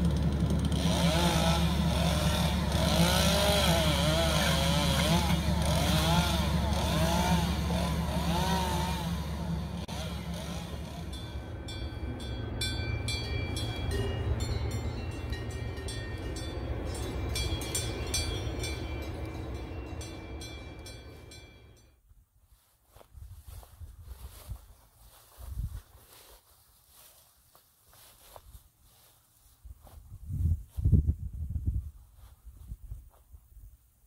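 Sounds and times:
combine harvester engine running: 0.0s - 21.8s
low hum: 0.0s - 22.0s
metallic clinks and ringing: 11.0s - 22.0s.

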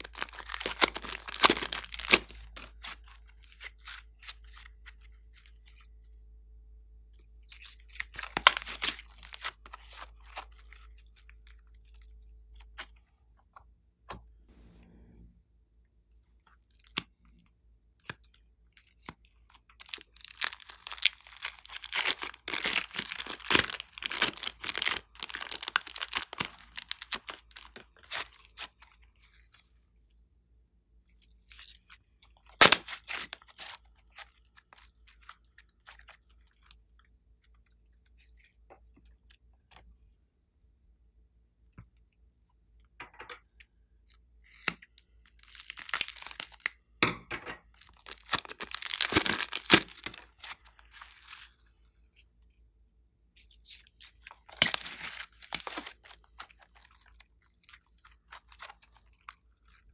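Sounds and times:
slime crackling and popping: 0.0s - 3.0s, 19.7s - 28.8s, 32.5s - 36.3s, 47.8s - 51.5s, 54.0s - 57.4s.

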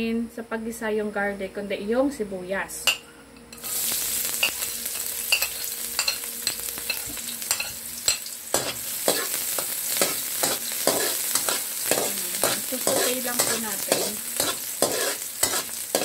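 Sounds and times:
onion sizzling in oil: 3.5s - 16.0s
metal spatula scraping wok: 3.6s - 16.0s.

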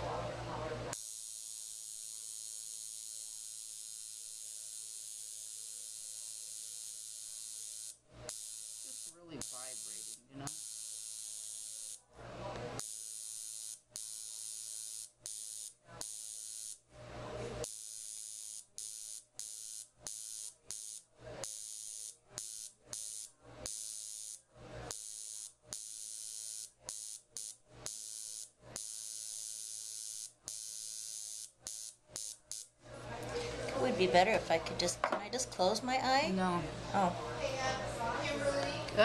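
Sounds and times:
makeup machine buzzing: 0.9s - 12.0s, 12.8s - 16.8s, 17.6s - 32.7s.

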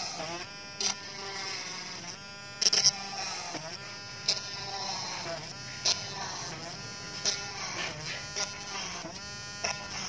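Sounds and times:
small electric drill running: 0.0s - 10.0s.

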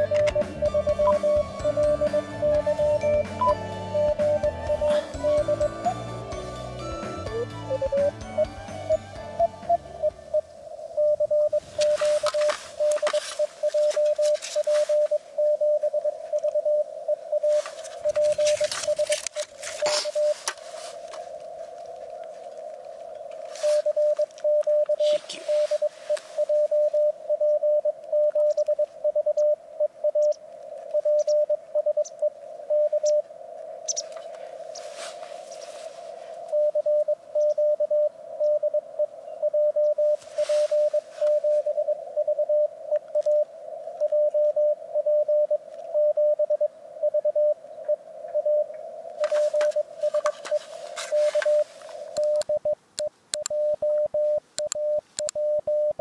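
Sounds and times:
morse code beeps: 0.0s - 20.4s, 23.6s - 33.3s, 36.5s - 56.0s
radio band hiss: 0.0s - 56.0s.

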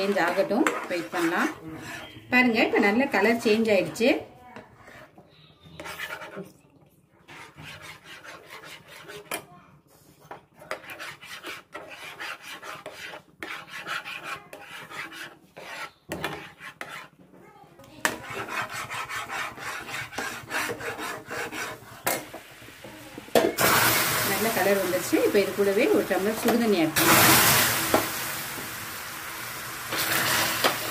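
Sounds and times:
metal spatula scraping pan: 0.0s - 6.5s, 7.3s - 17.2s, 17.9s - 22.4s
caramel sizzling hiss: 22.6s - 30.9s.

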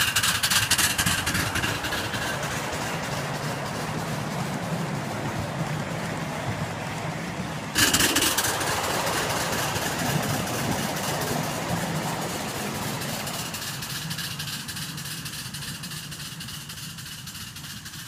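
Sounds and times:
train cars rumbling and clattering: 0.0s - 18.0s.

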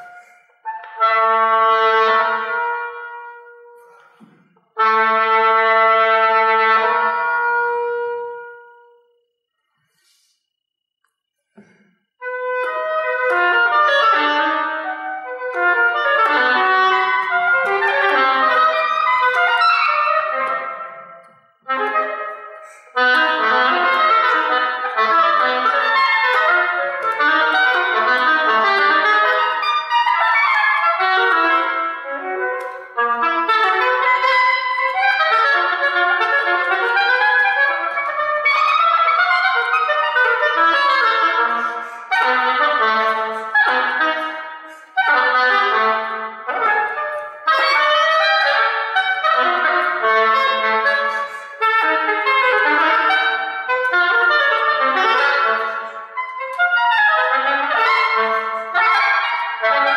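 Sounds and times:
oboe playing fast solo: 12.2s - 59.9s.

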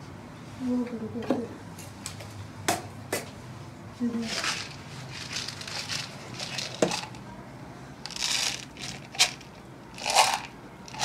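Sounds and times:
rustling and scraping: 4.2s - 7.2s.

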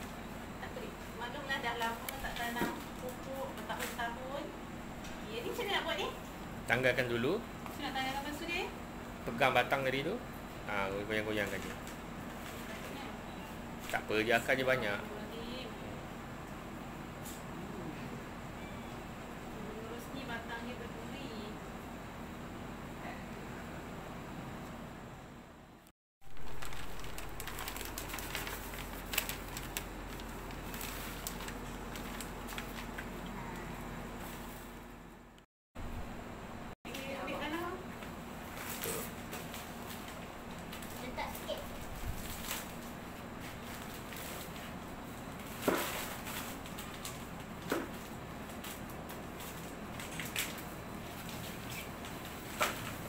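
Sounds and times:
plastic crinkling and rustling: 11.3s - 13.1s, 26.2s - 33.2s, 38.4s - 53.0s
plastic bag crinkling: 26.2s - 33.2s.

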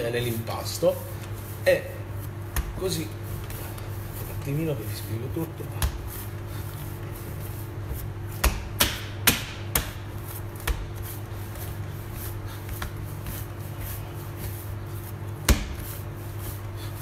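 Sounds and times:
steady low hum: 0.0s - 17.0s
hands slapping dough on stone: 5.8s - 6.3s, 7.9s - 11.2s, 15.4s - 16.0s.

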